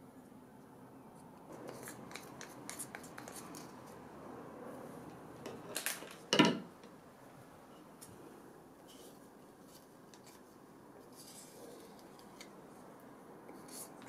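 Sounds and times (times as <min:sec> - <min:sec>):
stir stick scraping plastic: 0:01.5 - 0:04.0.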